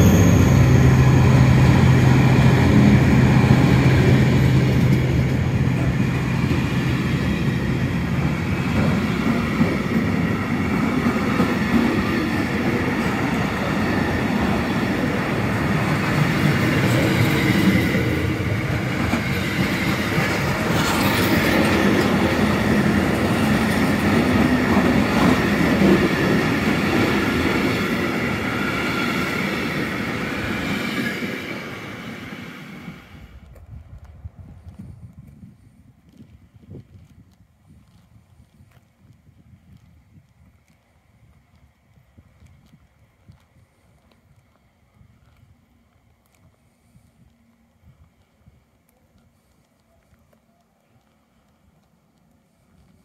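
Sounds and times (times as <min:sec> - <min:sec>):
locomotive engine drone: 0:00.0 - 0:30.6
train wagons rumbling over rails: 0:00.0 - 0:34.3.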